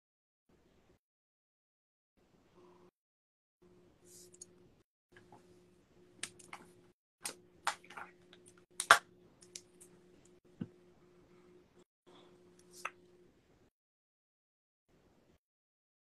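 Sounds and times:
faint steady hum: 0:03.6 - 0:13.7.

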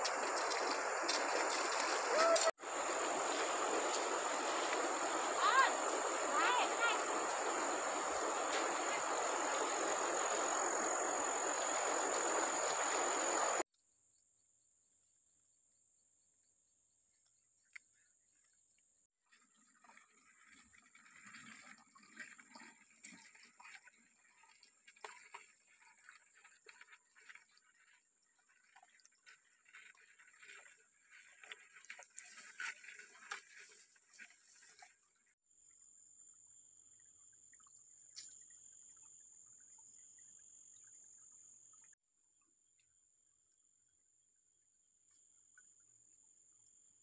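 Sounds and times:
stream trickling over rocks: 0:00.0 - 0:13.6, 0:19.2 - 0:35.2.

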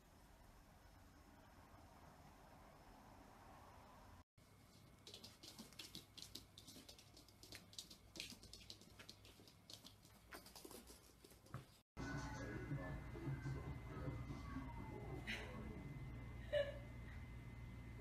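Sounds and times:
claws clicking on hard floor: 0:04.9 - 0:11.8.

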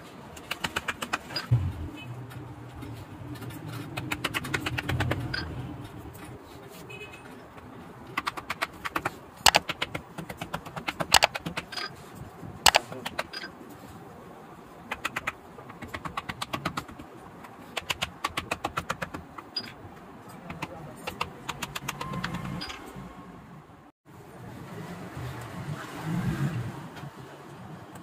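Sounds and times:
small hammer tapping leather: 0:08.2 - 0:11.7.

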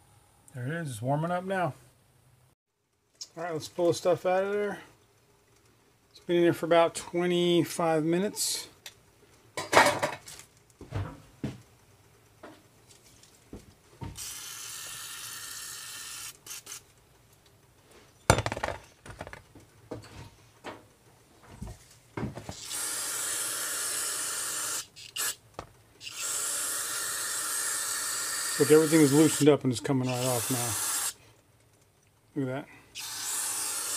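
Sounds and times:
aerosol spray hissing: 0:22.6 - 0:25.4, 0:26.0 - 0:31.2, 0:33.0 - 0:33.9.

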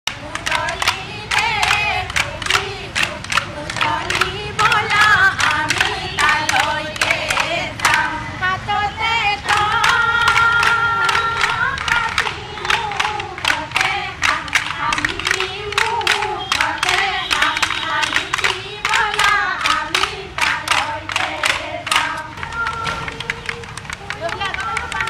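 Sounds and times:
bamboo clappers beating: 0:00.1 - 0:08.2, 0:09.4 - 0:25.0
women singing together: 0:00.1 - 0:25.0.

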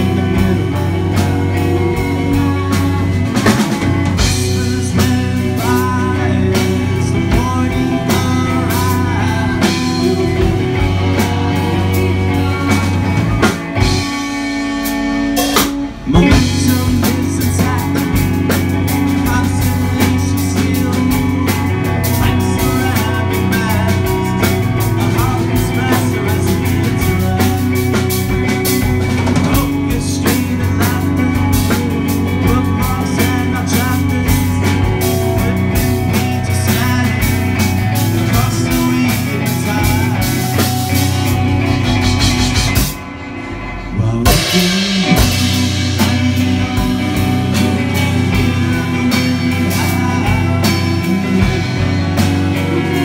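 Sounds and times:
live rock band playing: 0:00.0 - 0:53.0.

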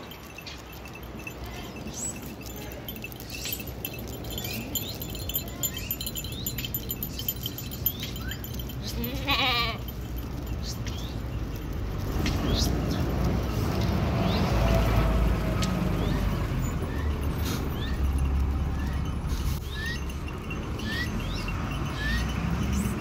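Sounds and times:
hooves clicking on asphalt: 0:00.0 - 0:23.0
goat bleating: 0:08.8 - 0:09.9.

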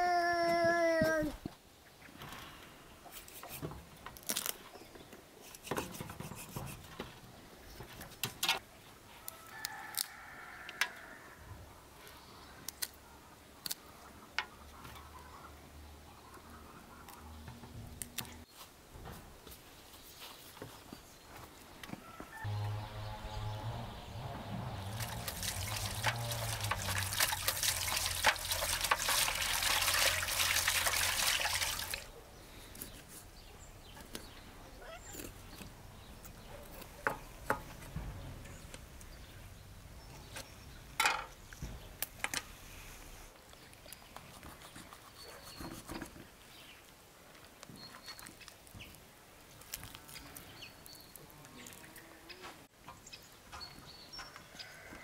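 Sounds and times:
liquid pouring: 0:24.8 - 0:32.1.

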